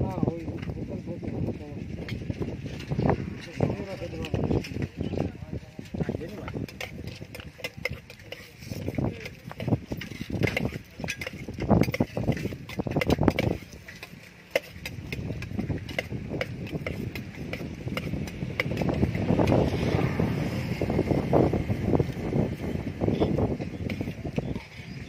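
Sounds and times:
low rumble: 17.8 - 23.7.

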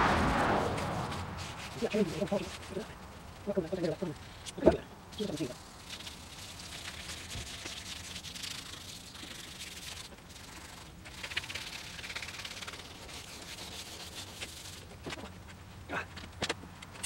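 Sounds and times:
sandpaper rubbing by hand: 0.7 - 3.0, 7.4 - 15.2.

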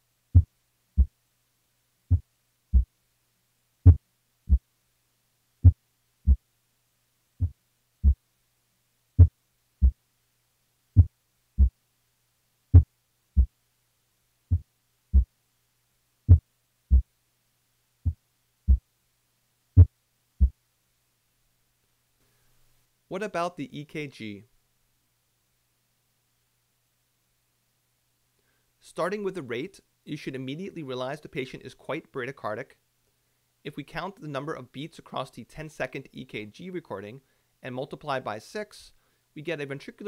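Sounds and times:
heartbeat lub-dub: 0.3 - 1.2, 2.1 - 2.9, 3.8 - 4.7, 5.6 - 6.4, 7.4 - 8.2, 9.2 - 10.0, 11.0 - 11.8, 12.7 - 13.5, 14.5 - 15.3, 16.3 - 17.1, 18.0 - 18.8, 19.8 - 20.6.

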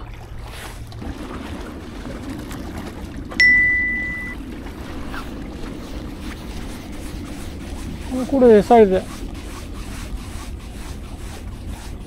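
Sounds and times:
sea washing against breakwater: 0.0 - 12.0
bell-like ding: 3.4 - 4.4.

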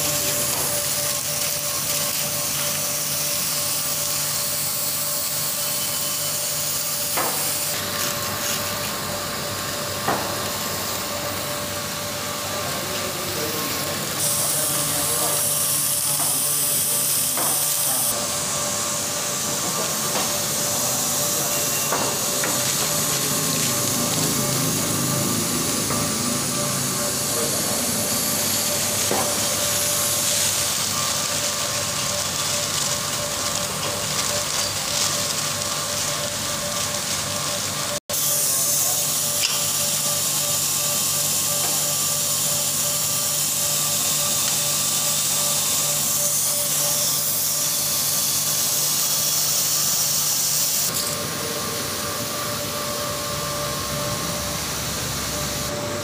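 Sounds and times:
machinery hissing and whining: 0.0 - 56.0.

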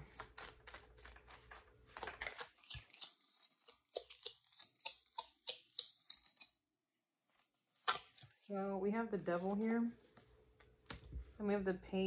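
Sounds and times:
cards clicking and snapping: 0.0 - 6.6, 7.8 - 8.4, 10.6 - 11.1.

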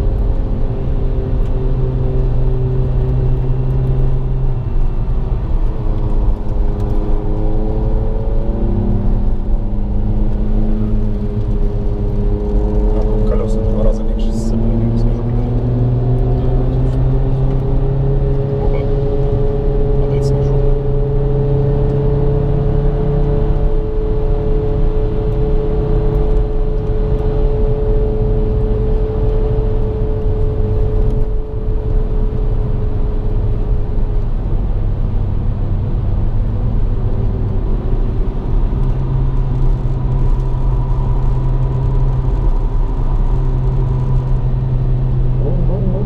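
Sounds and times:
car engine hum from inside: 0.0 - 46.0
tyre and road rumble: 37.1 - 46.0.

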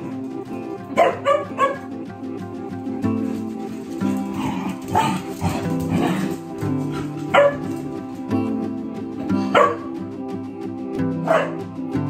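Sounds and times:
background music chords: 0.0 - 12.0
puppy yipping: 0.9 - 1.9, 6.9 - 7.8, 11.3 - 11.6.

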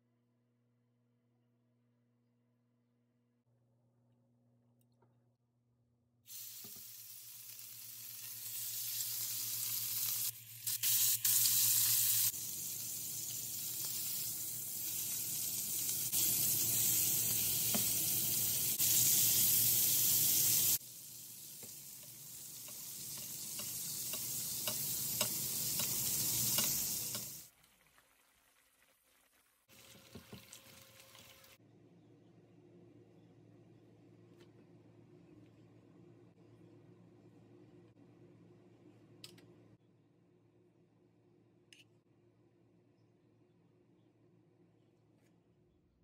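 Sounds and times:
steaks sizzling in frying pan: 6.3 - 27.5.

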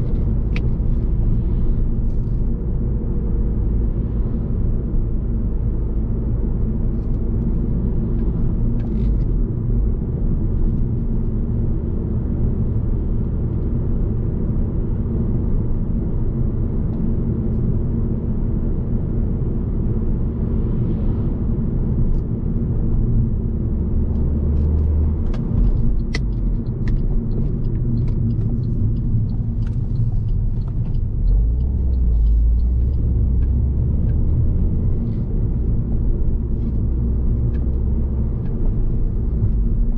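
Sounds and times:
car engine and tyre rumble: 0.0 - 39.9.

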